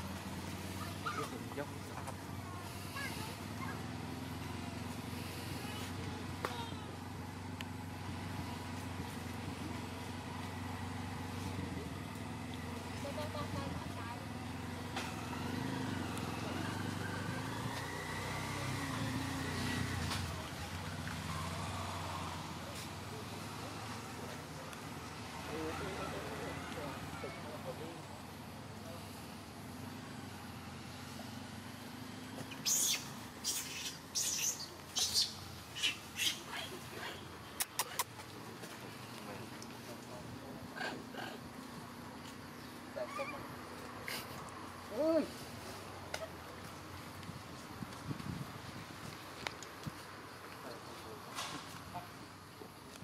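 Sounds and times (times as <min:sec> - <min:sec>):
monkey screeching: 0:32.5 - 0:36.7, 0:43.0 - 0:43.5.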